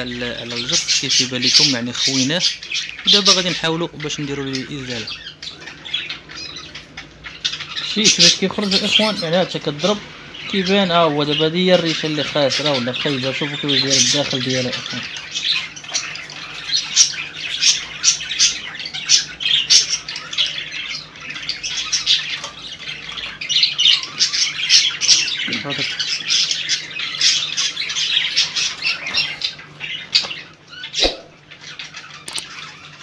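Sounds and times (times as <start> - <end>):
small bird squawking shrilly: 30.8 - 31.4
sharp click: 32.2 - 32.5.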